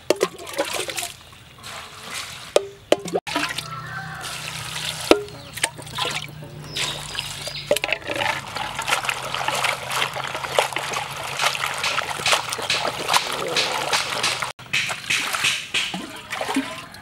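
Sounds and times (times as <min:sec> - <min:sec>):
water trickling over leaves: 0:03.3 - 0:17.0
hands swishing wet leaves: 0:03.4 - 0:16.8.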